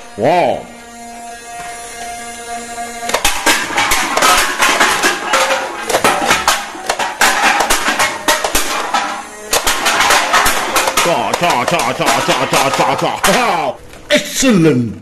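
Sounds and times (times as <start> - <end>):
toy dart blaster firing: 0.9 - 5.1
drink cans clattering: 3.1 - 14.1.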